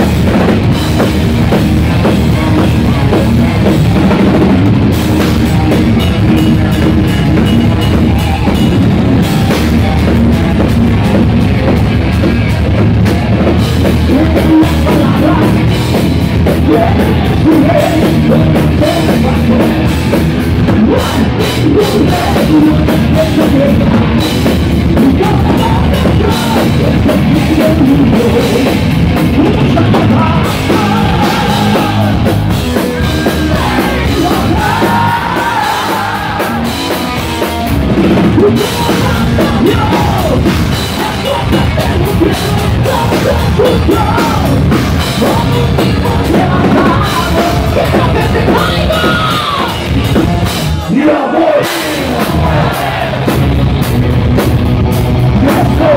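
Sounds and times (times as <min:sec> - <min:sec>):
amplified guitars: 0:00.0 - 0:55.9
drum kit: 0:00.0 - 0:55.9
person singing: 0:13.8 - 0:15.8, 0:16.6 - 0:20.1, 0:20.8 - 0:24.3, 0:25.0 - 0:37.0, 0:38.2 - 0:49.9, 0:55.4 - 0:55.9.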